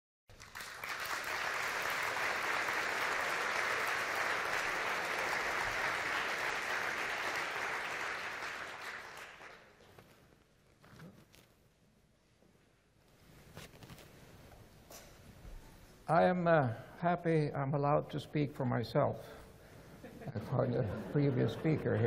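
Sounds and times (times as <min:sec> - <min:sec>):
audience applauding: 0:00.3 - 0:09.9.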